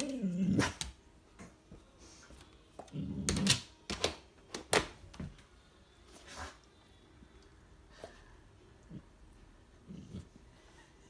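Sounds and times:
dog grumbling: 0.0 - 0.8, 8.8 - 10.5.

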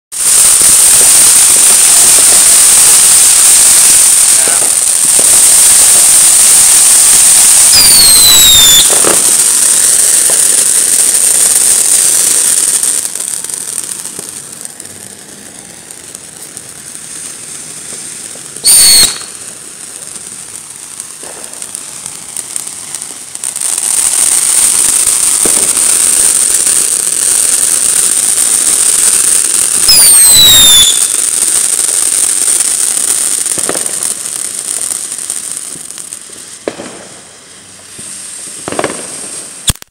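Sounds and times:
fireworks fountains hissing: 0.1 - 39.9
sharp firework crack: 0.1 - 39.9
short falling whistles: 18.6 - 19.3, 29.8 - 31.2.

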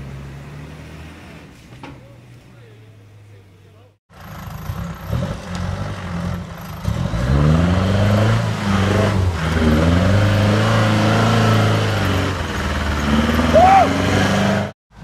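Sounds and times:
engine revving hard: 4.1 - 14.8.

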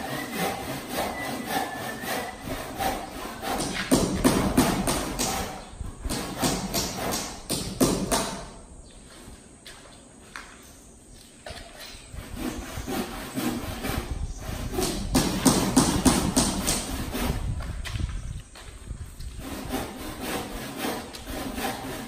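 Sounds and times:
hand saw cutting wood: 0.0 - 8.6, 11.8 - 17.6, 19.2 - 22.0.

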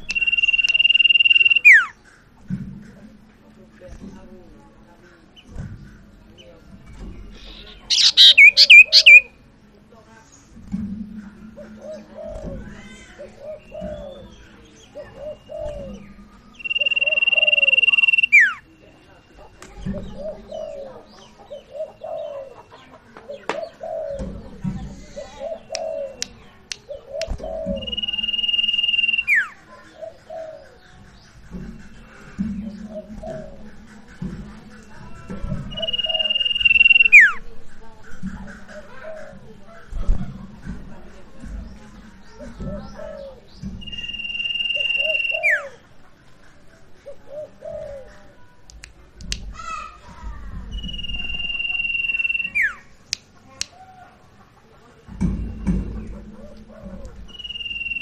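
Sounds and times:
songbird long high whistle: 0.1 - 1.8, 16.6 - 18.6, 27.8 - 29.5, 35.7 - 37.4, 43.8 - 45.6, 50.7 - 52.8, 57.3 - 58.0
doves cooing: 7.3 - 9.4, 11.5 - 18.7, 19.4 - 40.7, 41.3 - 48.6, 55.3 - 58.0
owl hooting: 7.4 - 9.3, 16.6 - 18.6, 35.7 - 37.4, 42.9 - 45.8.

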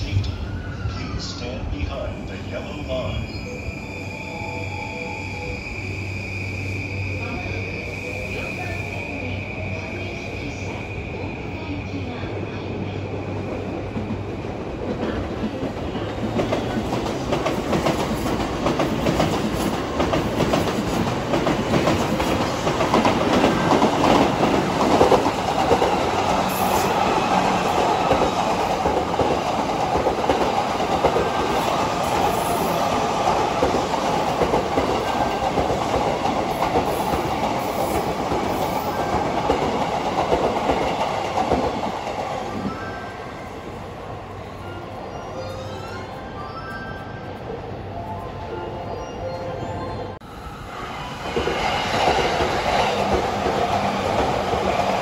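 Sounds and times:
distant high-speed train passing: 0.0 - 55.0
train wheels rumbling on rails: 6.5 - 42.9, 50.5 - 55.0.

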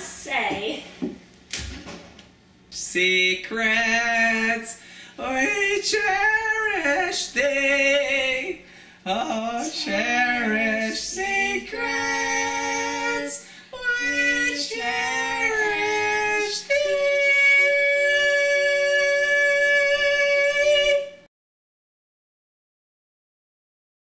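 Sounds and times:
man and woman singing jingle: 3.0 - 21.2.

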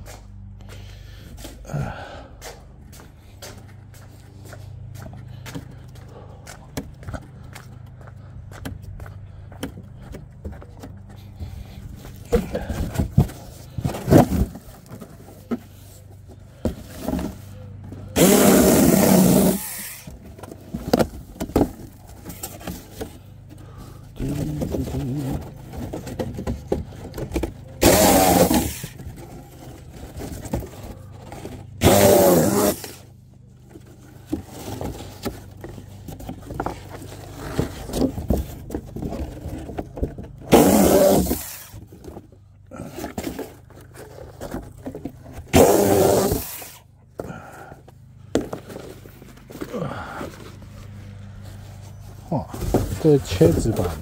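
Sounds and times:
power saw cutting cardboard: 18.1 - 22.8, 24.2 - 33.2, 36.2 - 42.1, 45.2 - 47.5, 52.6 - 54.0.

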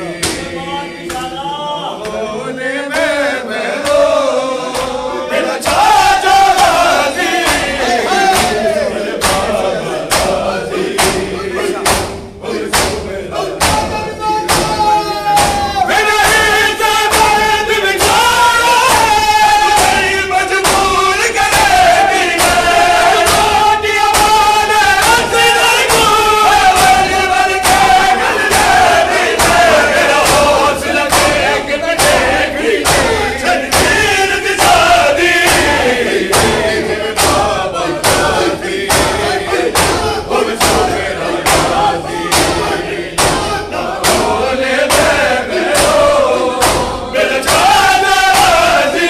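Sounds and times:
men chanting a lament: 0.0 - 49.0
hands striking chests: 13.6 - 48.8.

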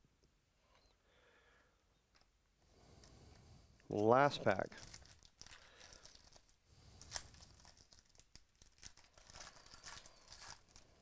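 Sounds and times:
foil wrapper tearing and crinkling: 4.8 - 11.0.

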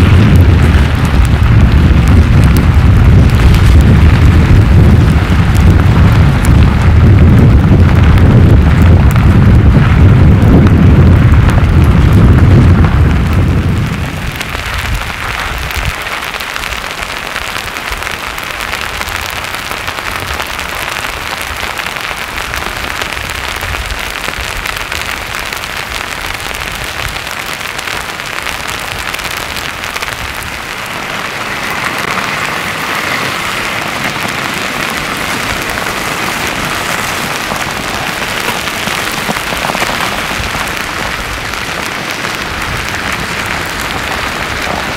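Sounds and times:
loud low rumble: 0.0 - 16.0
lava crackling and scraping hiss: 0.0 - 44.9.

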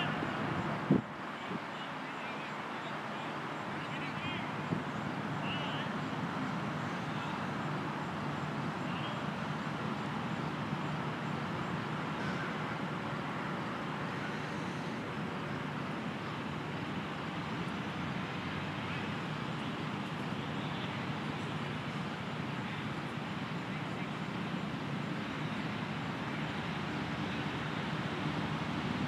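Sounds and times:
steady rushing background noise: 0.0 - 29.0.

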